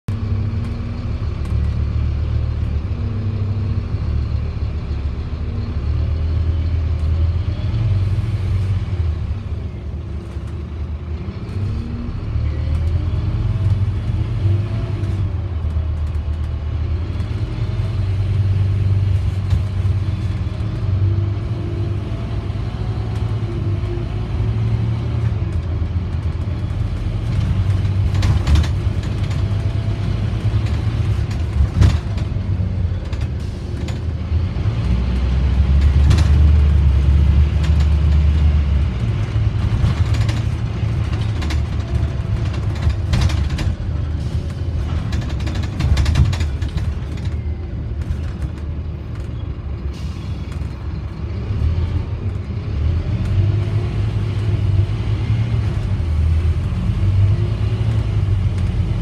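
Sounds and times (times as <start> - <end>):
bus diesel engine rumble: 0.1 - 59.0.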